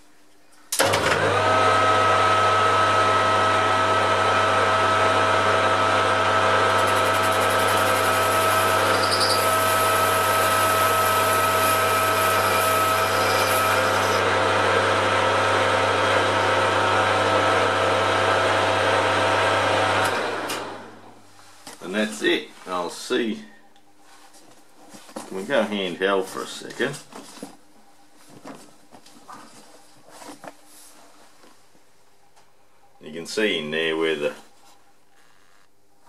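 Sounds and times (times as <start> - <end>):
lathe switching on: 0.7 - 14.4, 18.3 - 21.1
metal lathe running: 3.3 - 17.6.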